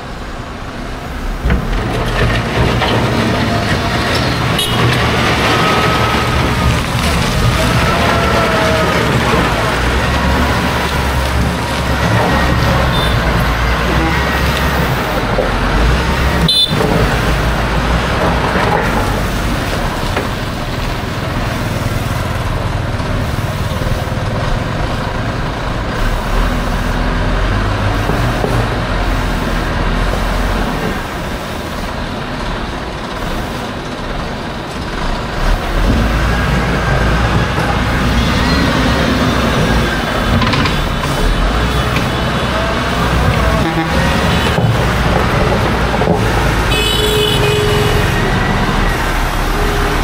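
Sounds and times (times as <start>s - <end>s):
vehicle engine and road noise: 0.0s - 50.0s.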